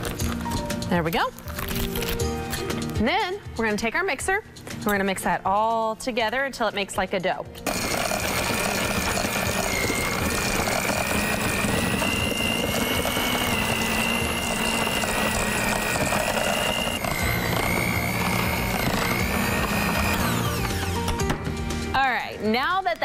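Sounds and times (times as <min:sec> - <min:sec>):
electric hand mixer whine: 0:07.6 - 0:21.4.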